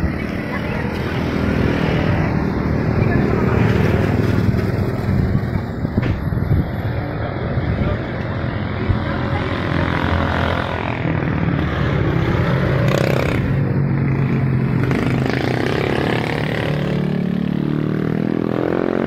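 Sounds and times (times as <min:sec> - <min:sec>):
vehicle engine speeding up: 0:07.7 - 0:19.0.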